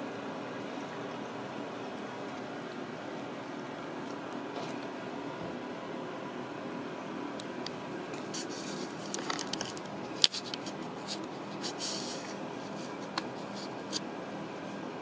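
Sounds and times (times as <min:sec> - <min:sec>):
steady background hum: 0:00.0 - 0:15.0
scratching against fleece: 0:08.2 - 0:14.1.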